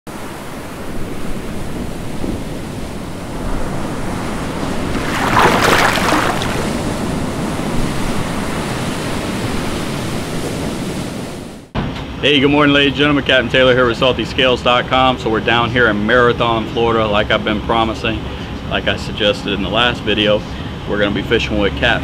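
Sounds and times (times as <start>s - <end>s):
ocean waves: 0.1s - 11.7s
wind rushing: 3.5s - 8.7s.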